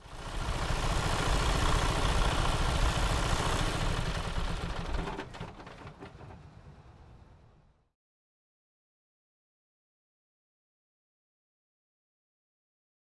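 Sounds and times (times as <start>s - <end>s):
vehicle engine rumbling: 0.0s - 7.8s.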